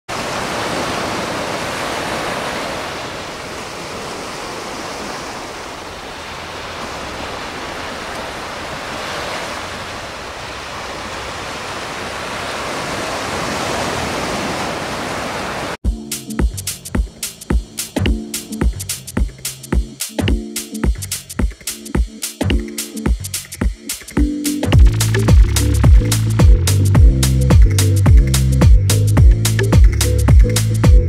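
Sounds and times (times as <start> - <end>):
small waves breaking on beach: 0.1 - 15.8.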